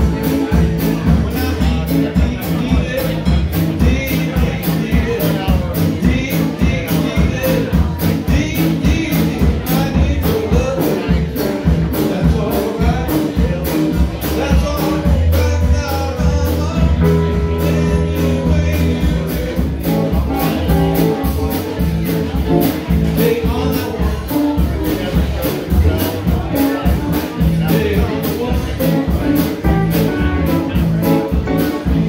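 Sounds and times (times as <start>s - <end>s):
drum kit beat on cymbals: 0.0s - 32.0s
electric bass: 0.0s - 32.0s
electric guitars: 13.1s - 32.0s.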